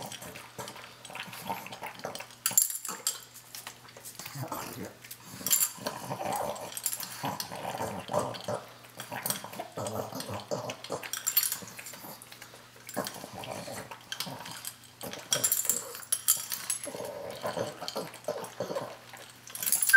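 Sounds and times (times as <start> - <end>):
dog crunching dry kibble: 0.0 - 19.9
dog grunting and snuffling: 4.1 - 16.0, 16.8 - 19.2.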